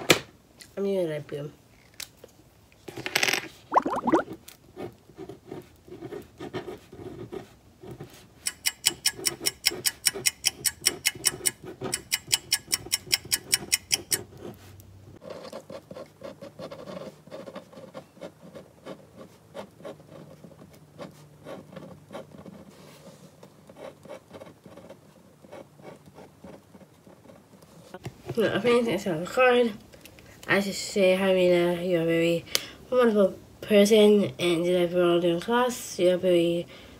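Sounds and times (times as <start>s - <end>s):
pen scratching on paper: 4.8s - 8.2s, 15.2s - 27.6s.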